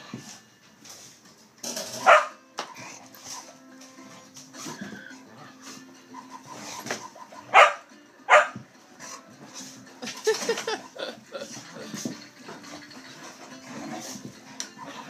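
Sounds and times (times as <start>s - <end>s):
dogs barking: 1.9s - 12.0s, 12.6s - 15.0s
dogs play-fighting vocal sounds: 11.5s - 15.0s.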